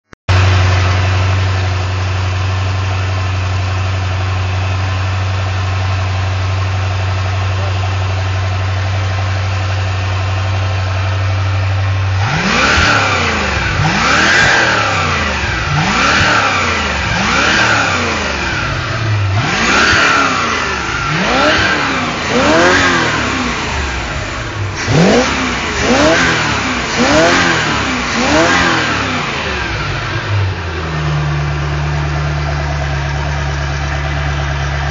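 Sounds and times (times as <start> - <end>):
boat engine idling and revving: 0.3 - 34.9.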